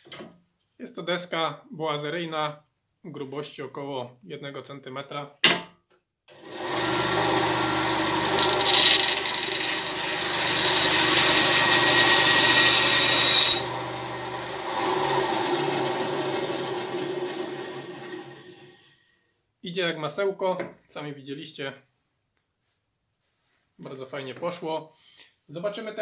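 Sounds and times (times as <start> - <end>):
saw blade rasping through wood: 6.4 - 18.2
band saw motor hum: 6.4 - 18.6.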